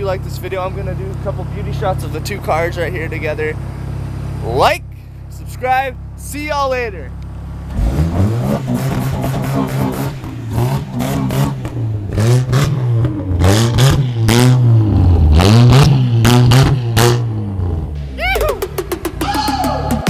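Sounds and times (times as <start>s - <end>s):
sharp exhaust cracks: 5.0s - 20.0s
pickup engine revving: 7.2s - 20.0s.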